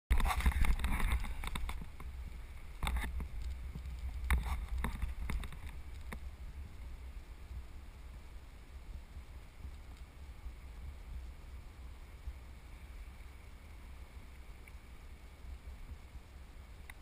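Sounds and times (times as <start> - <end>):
sharp clicks and knocks: 0.1 - 2.1, 2.8 - 6.2
wind rumbling on microphone: 0.1 - 17.0.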